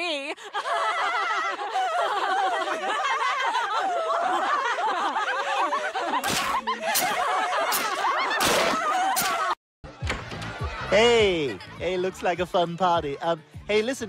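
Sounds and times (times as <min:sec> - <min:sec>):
women laughing: 0:00.0 - 0:09.6.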